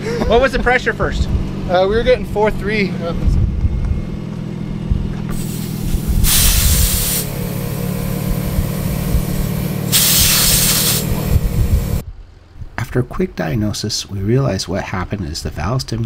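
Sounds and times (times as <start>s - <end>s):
air compressor humming: 4.8s - 12.0s
air hissing at tire valve: 5.3s - 12.0s.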